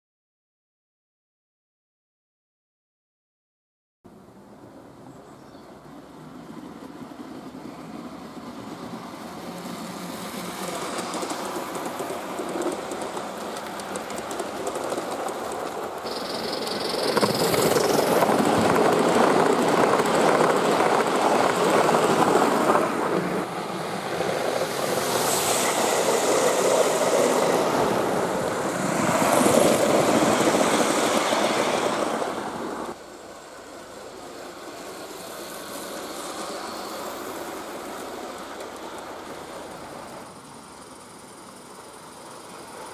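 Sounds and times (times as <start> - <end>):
model train wheels rattling: 10.3 - 22.5.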